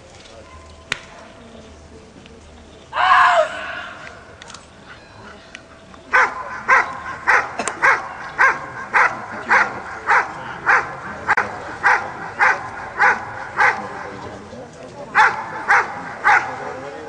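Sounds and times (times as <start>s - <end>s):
dog barking sharply: 6.1s - 14.1s, 15.2s - 16.6s.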